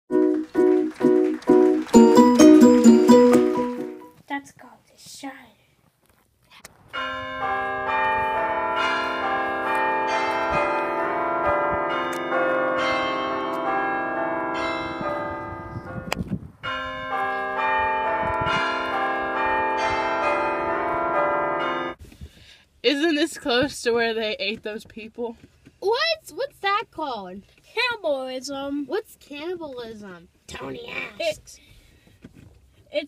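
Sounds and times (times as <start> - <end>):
bell-like ringing music: 0.1 - 4.1, 7.0 - 16.1.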